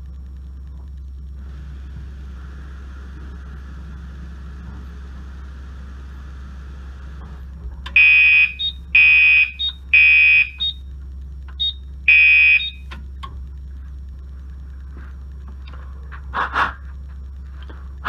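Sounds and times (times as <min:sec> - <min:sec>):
fire alarm beeps: 0:08.0 - 0:10.8, 0:11.6 - 0:12.9.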